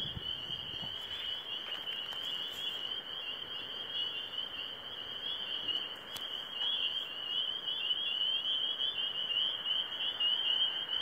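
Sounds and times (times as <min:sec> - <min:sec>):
chorus of frogs calling: 0:00.0 - 0:11.0.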